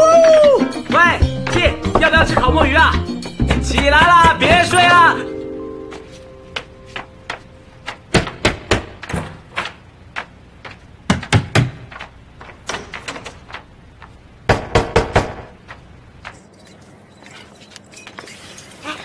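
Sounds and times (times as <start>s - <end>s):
knocking on hard surface: 1.5s - 4.7s.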